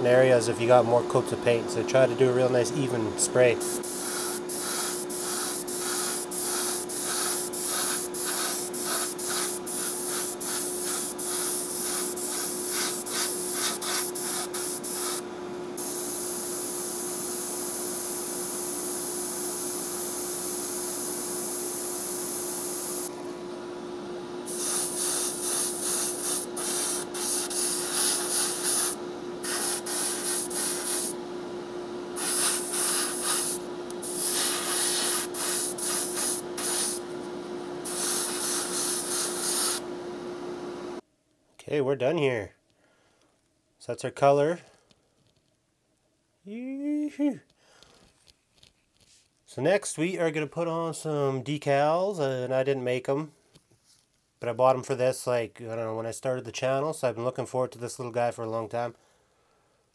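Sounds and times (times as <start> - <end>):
steady low hum: 0.0 - 41.0
airbrush hissing: 3.6 - 23.1, 24.5 - 31.2, 32.2 - 37.0, 37.8 - 39.8.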